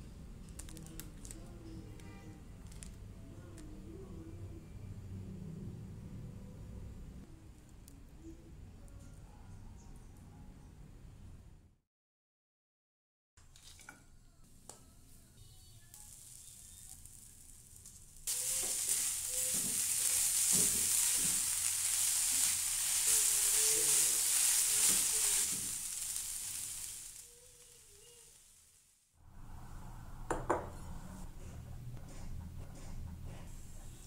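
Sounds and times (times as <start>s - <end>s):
food sizzling in a frying pan: 15.6s - 29.1s
spatula scraping a pan: 18.3s - 25.8s.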